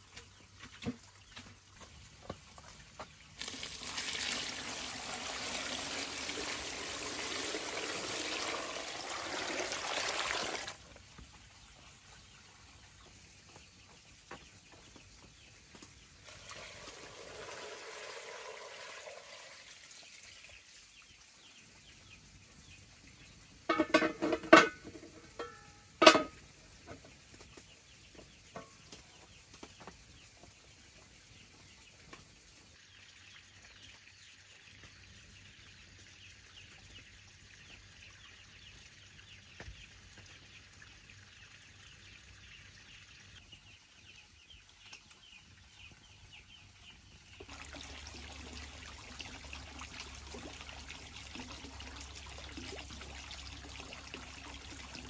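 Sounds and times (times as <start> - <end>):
water trickling and pouring: 2.6 - 13.1, 16.2 - 26.4, 46.8 - 55.0.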